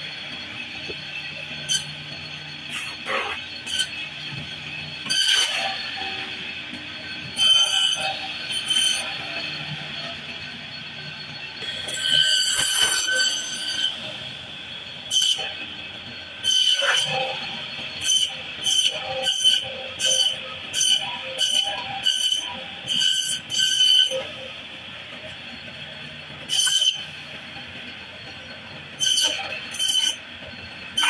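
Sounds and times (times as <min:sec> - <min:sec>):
saw blade screeching through fish: 0:02.7 - 0:03.9, 0:05.0 - 0:06.3, 0:07.4 - 0:09.2, 0:11.9 - 0:14.0, 0:16.4 - 0:17.2, 0:18.0 - 0:24.2, 0:26.5 - 0:27.1, 0:29.0 - 0:30.2.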